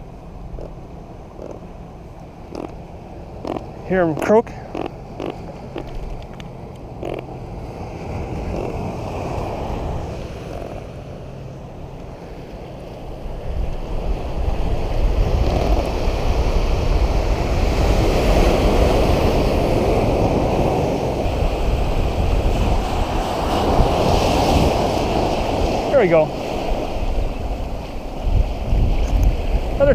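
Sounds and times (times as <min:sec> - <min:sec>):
wind buffeting microphone: 0:13.2 - 0:29.9.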